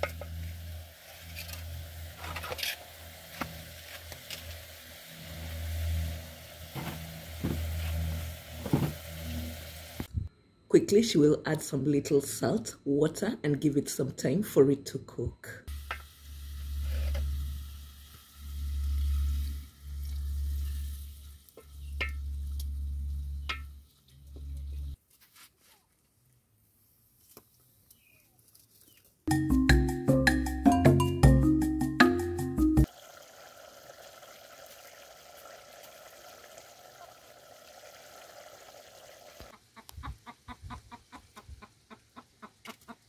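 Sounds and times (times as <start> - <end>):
food sizzling in a pot: 0.0 - 10.1, 15.7 - 23.8, 32.8 - 39.5
water pouring: 32.8 - 39.5
stew bubbling in a pot: 32.9 - 39.8.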